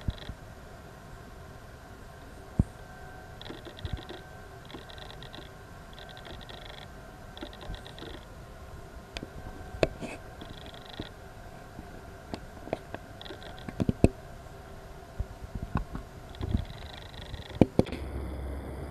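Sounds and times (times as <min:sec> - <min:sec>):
buzzy insect trills: 0:00.0 - 0:00.5, 0:02.0 - 0:14.8, 0:16.2 - 0:18.9
sharp clicks: 0:03.4 - 0:08.2, 0:10.4 - 0:11.1, 0:12.7 - 0:14.1, 0:15.8 - 0:18.0.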